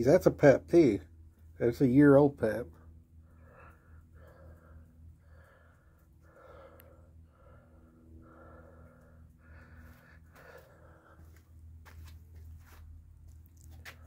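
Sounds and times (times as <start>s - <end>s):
low hum: 0.0s - 14.0s
person breathing: 2.8s - 12.8s.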